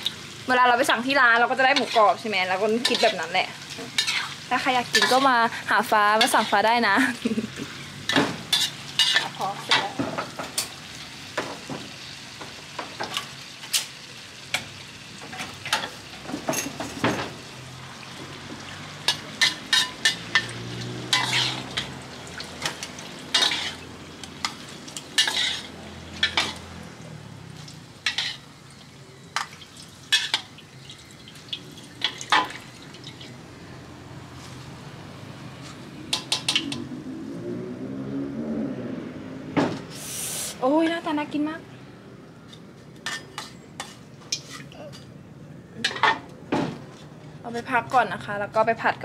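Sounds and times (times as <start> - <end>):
deep-frying sizzle: 0.0 - 37.5, 39.8 - 41.5
metal spatula scraping wok: 1.3 - 6.8, 7.6 - 10.0, 19.0 - 26.9, 28.0 - 28.5, 42.5 - 44.8.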